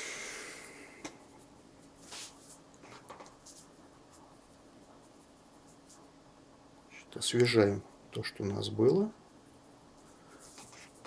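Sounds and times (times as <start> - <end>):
brush rubbing in plastic palette: 1.2 - 6.2, 9.1 - 11.0.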